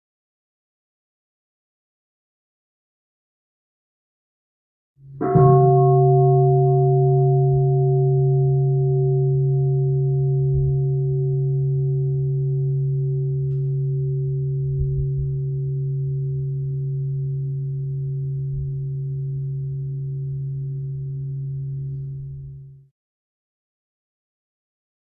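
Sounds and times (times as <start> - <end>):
bowl bell ringing: 5.0 - 22.8.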